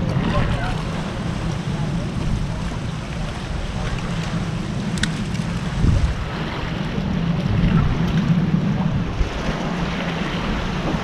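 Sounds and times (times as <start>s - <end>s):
ocean waves: 0.0s - 11.0s
wind buffeting microphone: 0.0s - 11.0s.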